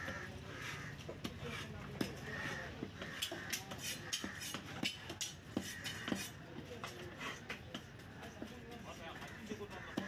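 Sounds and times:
cleaver chopping on wood: 3.0 - 8.5.

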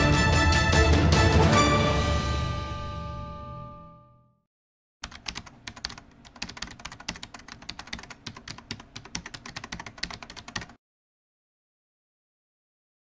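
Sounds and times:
computer keyboard typing: 5.0 - 10.8.

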